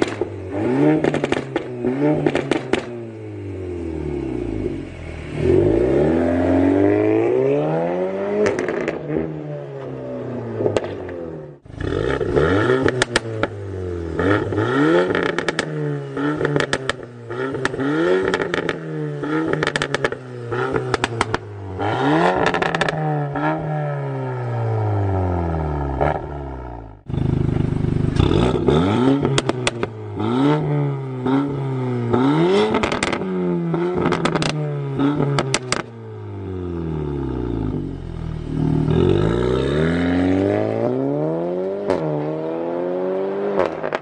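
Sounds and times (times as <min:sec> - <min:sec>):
exhaust crackles and pops: 0:00.0 - 0:00.4, 0:01.0 - 0:03.0, 0:10.6 - 0:13.6, 0:14.2 - 0:18.8, 0:19.5 - 0:21.4, 0:27.0 - 0:30.0, 0:32.7 - 0:33.3, 0:33.9 - 0:36.0, 0:43.6 - 0:44.0
car engine revving: 0:00.0 - 0:44.0.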